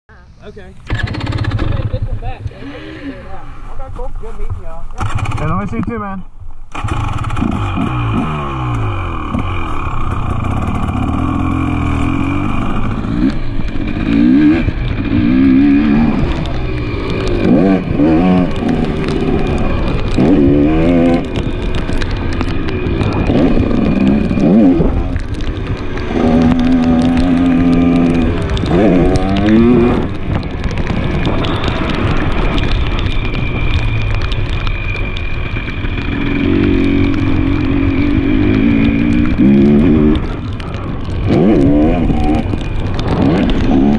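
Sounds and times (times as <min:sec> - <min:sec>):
two-stroke engine revving: 0:00.9 - 0:02.6, 0:05.0 - 0:05.8, 0:06.7 - 0:30.2, 0:35.5 - 0:43.9.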